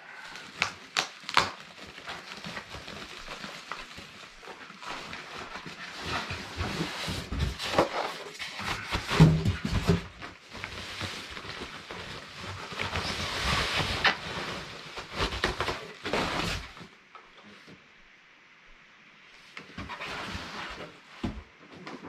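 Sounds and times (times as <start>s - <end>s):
plastic wrapping crinkling: 0.0s - 17.0s.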